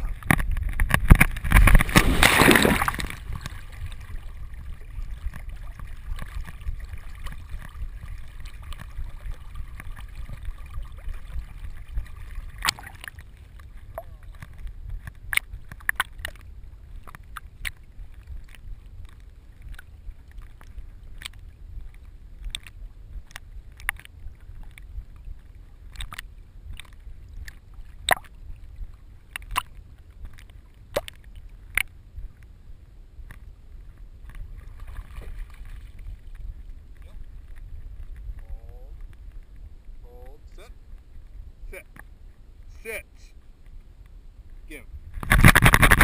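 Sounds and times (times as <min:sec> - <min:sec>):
water sloshing: 0:00.0 - 0:31.8, 0:34.2 - 0:39.6
dog paddling splashes: 0:01.5 - 0:04.4.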